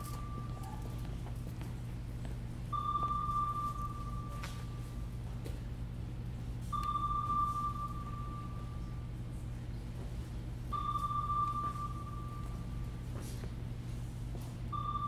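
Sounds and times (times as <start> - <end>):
steady low hum: 0.0 - 15.0
sonar pings: 2.7 - 4.8, 6.7 - 9.0, 10.7 - 12.8, 14.7 - 15.0.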